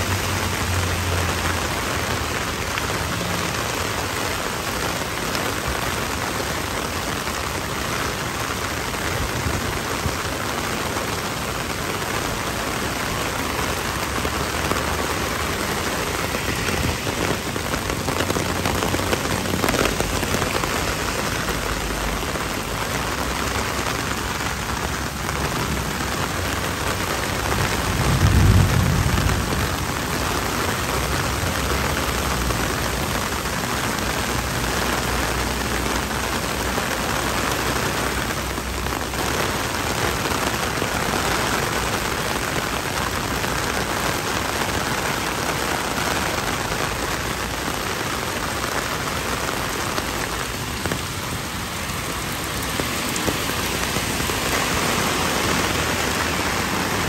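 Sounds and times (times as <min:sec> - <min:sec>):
heavy rain on pavement: 0:00.0 - 0:57.0
low rumble: 0:27.8 - 0:30.2.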